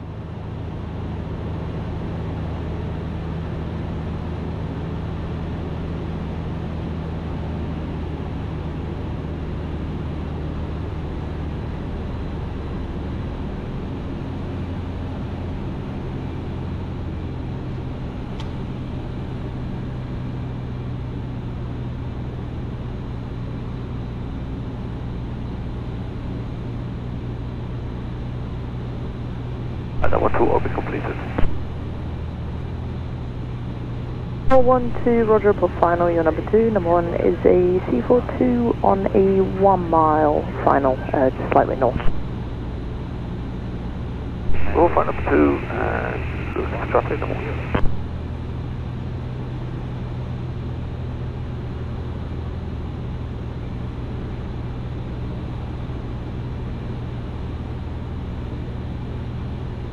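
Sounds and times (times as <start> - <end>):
microlight engine and propeller droning: 0.0 - 59.9.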